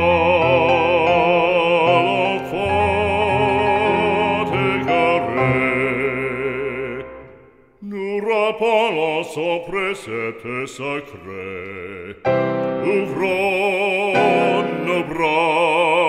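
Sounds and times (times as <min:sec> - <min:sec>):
person singing with vibrato: 0:00.0 - 0:16.0
instrumental accompaniment: 0:12.3 - 0:15.3.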